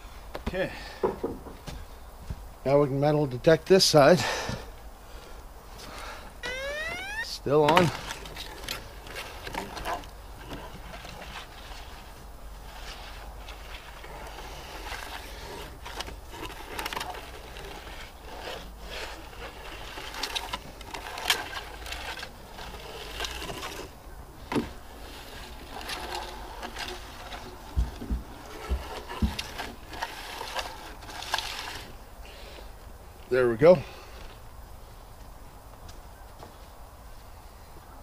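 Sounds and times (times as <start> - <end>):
metal detector scraping wood: 6.4 - 7.8, 11.0 - 24.0, 24.6 - 27.6, 28.4 - 32.0.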